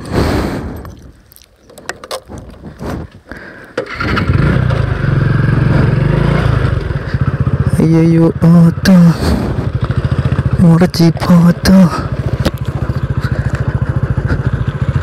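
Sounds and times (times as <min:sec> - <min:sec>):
motorcycle engine running: 0:03.9 - 0:15.0.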